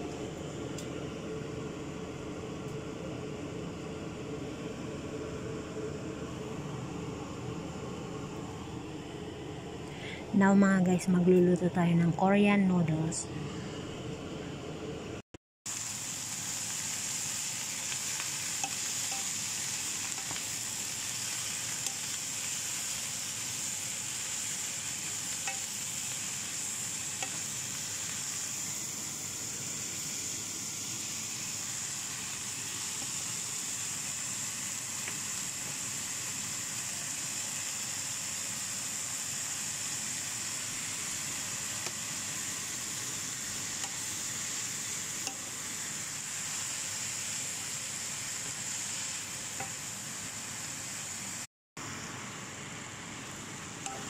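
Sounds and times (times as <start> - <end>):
vegetables sizzling in a frying pan: 15.7 - 54.0
spatula tapping pan: 25.4 - 25.7, 45.2 - 45.5.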